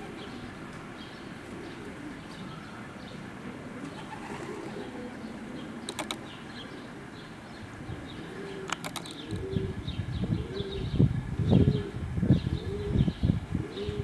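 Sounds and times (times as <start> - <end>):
sharp clicks: 5.9 - 6.2, 8.7 - 9.4.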